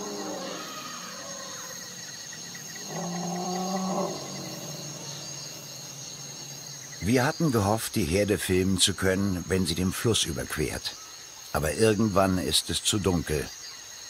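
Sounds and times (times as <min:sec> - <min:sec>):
elephant call: 0:00.0 - 0:05.4
insects droning: 0:00.0 - 0:14.0.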